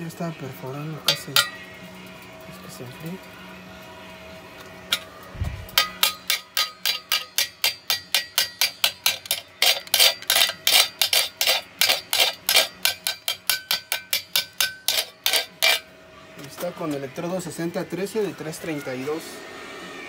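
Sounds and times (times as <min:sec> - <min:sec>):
pliers tapping metal weld: 0:01.0 - 0:01.7, 0:04.6 - 0:17.1.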